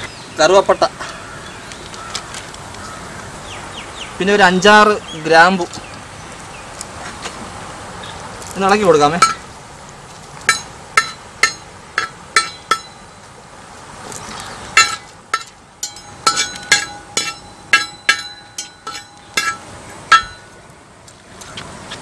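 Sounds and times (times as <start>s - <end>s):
metal pan ringing: 9.2s - 9.4s, 10.5s - 13.2s, 14.8s - 20.6s
spoon clinking and scraping metal pan: 14.8s - 20.5s.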